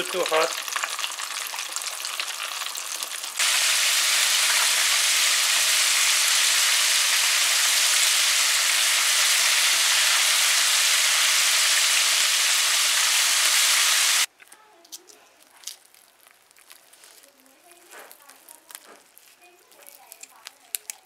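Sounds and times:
wings sizzling in hot oil: 0.0 - 14.3.

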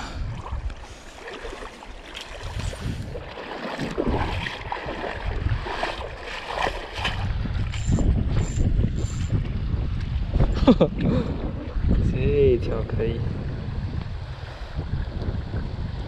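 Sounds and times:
river water splashing: 0.0 - 7.9
wind rumbling on microphone: 0.0 - 16.0.

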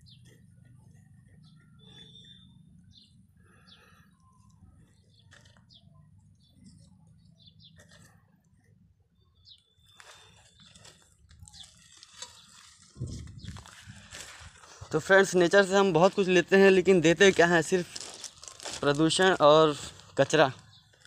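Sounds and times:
faint bird chirps: 0.0 - 13.6
soil and dry grass crunching: 9.9 - 21.0.

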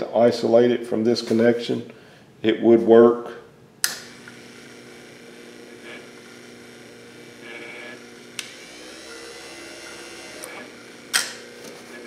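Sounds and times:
switch click: 3.8 - 4.1, 10.4 - 11.4
wiper motor whirring: 4.0 - 12.0.

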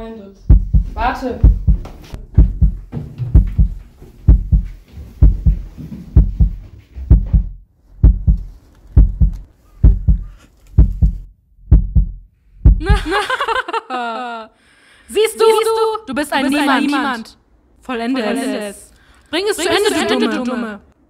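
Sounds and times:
heartbeat thumps: 0.4 - 13.3.

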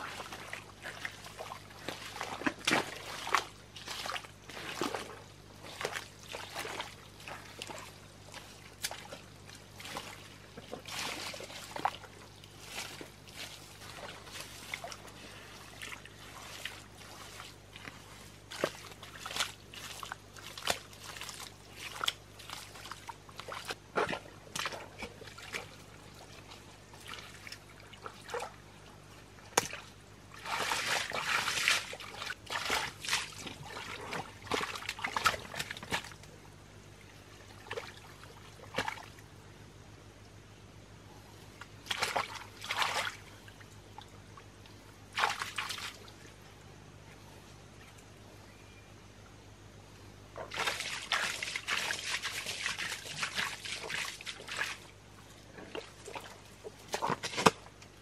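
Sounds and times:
hands splashing in muddy water: 0.0 - 25.8, 29.6 - 36.2, 41.8 - 43.2, 45.1 - 46.0, 50.4 - 54.9.

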